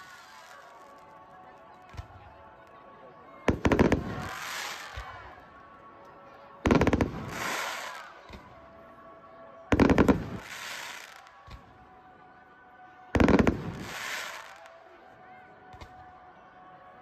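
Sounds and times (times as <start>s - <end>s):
fireworks crackle: 0.0s - 2.2s, 3.5s - 5.4s, 6.7s - 8.5s, 9.7s - 11.8s, 13.2s - 14.9s
fireworks bangs: 3.5s - 5.2s, 6.7s - 8.5s, 9.8s - 11.6s, 13.2s - 14.7s.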